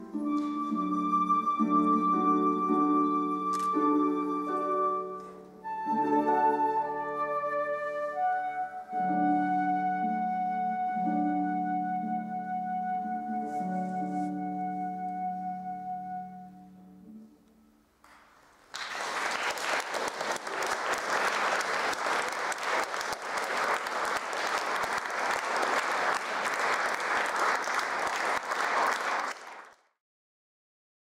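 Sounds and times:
flute and harp music: 0:00.0 - 0:17.8
audience applauding: 0:18.1 - 0:29.9.

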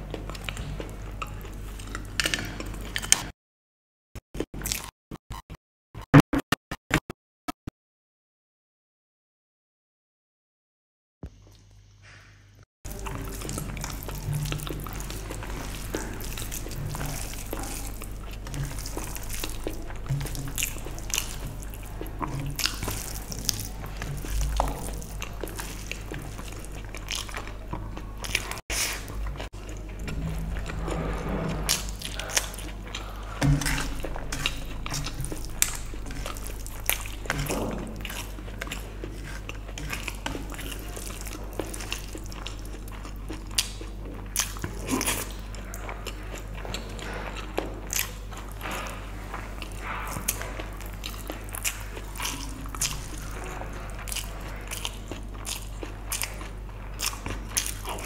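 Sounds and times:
steady low hum: 0:11.4 - 0:58.0
wet chewing and lip smacks: 0:12.9 - 0:30.8, 0:32.0 - 0:58.0.

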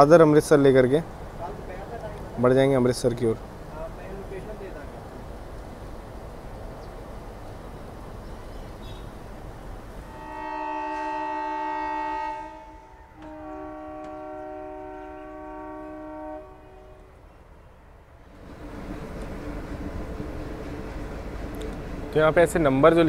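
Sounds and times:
train coaches rumbling on rails: 0:00.0 - 0:23.0
locomotive horn blasts: 0:10.0 - 0:17.1.

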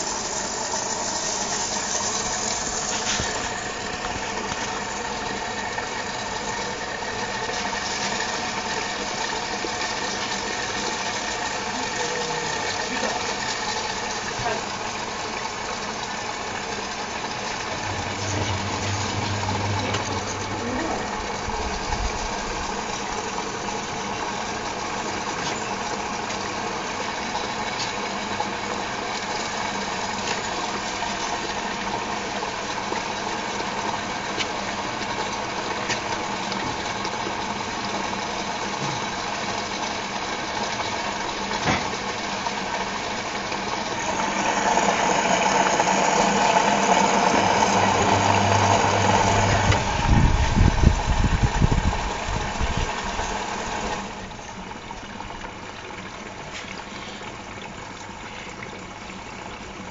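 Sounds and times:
washing machine drum turning: 0:00.0 - 0:26.5, 0:38.2 - 0:54.1
low knocks: 0:17.7 - 0:20.8.

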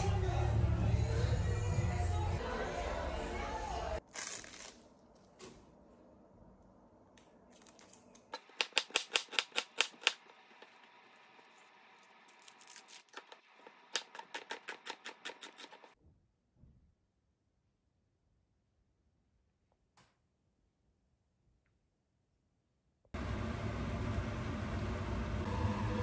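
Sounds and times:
knife chopping onion on wooden board: 0:08.4 - 0:10.7.

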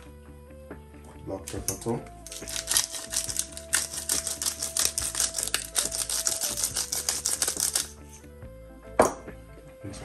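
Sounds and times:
pepper grinder gritty clicks: 0:01.5 - 0:07.9.

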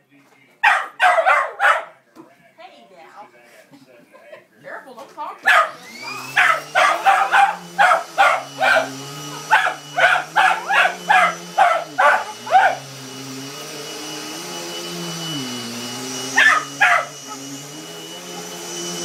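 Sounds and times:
dog barking: 0:00.6 - 0:02.0, 0:05.4 - 0:12.9, 0:16.3 - 0:17.5
vacuum cleaner motor hum: 0:05.4 - 0:19.0.

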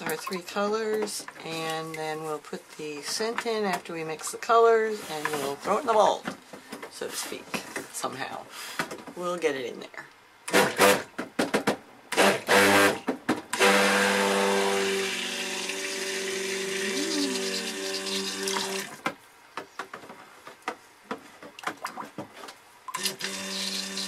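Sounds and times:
stick blender motor hum: 0:13.6 - 0:18.9, 0:23.0 - 0:24.0.

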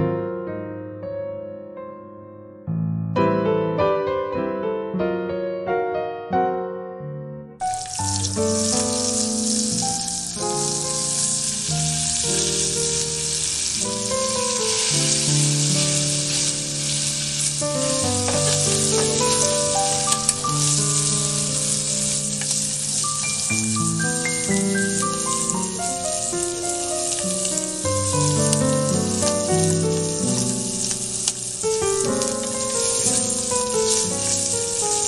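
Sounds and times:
gentle piano music: 0:00.0 - 0:35.0
meat sizzling in hot oil: 0:07.6 - 0:35.0.

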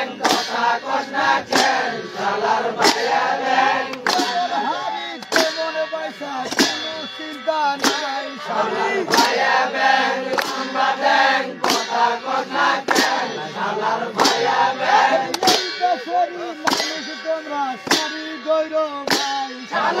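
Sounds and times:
men chanting: 0:00.0 - 0:20.0.

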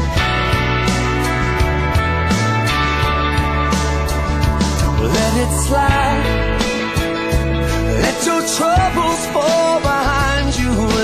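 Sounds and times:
guitar: 0:00.0 - 0:11.0
steady drum beat: 0:00.0 - 0:11.0.

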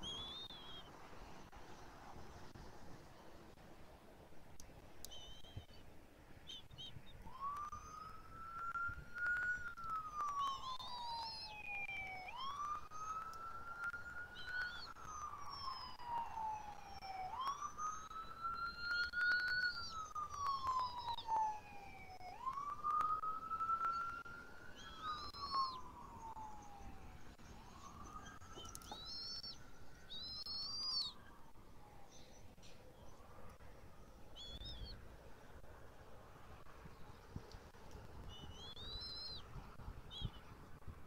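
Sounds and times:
bird chirping: 0:00.0 - 0:01.0, 0:05.0 - 0:08.3, 0:09.2 - 0:16.6, 0:23.8 - 0:35.0, 0:38.2 - 0:39.5, 0:40.1 - 0:40.6
siren wailing: 0:07.2 - 0:32.2.

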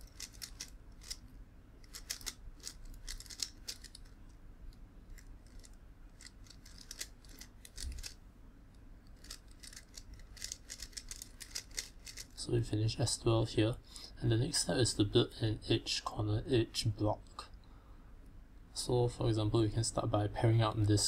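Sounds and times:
puzzle clicking as layers turn: 0:00.0 - 0:01.2, 0:01.8 - 0:08.2, 0:09.1 - 0:12.4.

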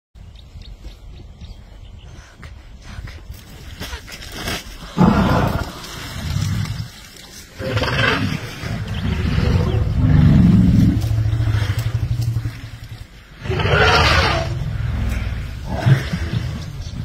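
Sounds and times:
elephant deep rumble: 0:04.7 - 0:17.0.

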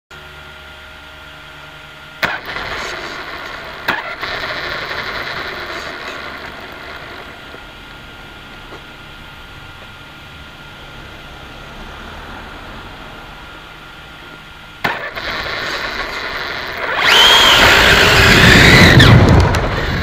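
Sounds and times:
motor and tyres on rough tarmac: 0:00.1 - 0:20.0
faint electronic whine: 0:00.2 - 0:20.0.

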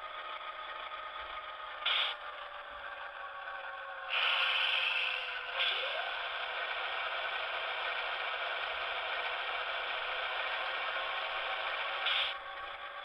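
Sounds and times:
thin hissy diesel engine recording: 0:04.1 - 0:12.4.

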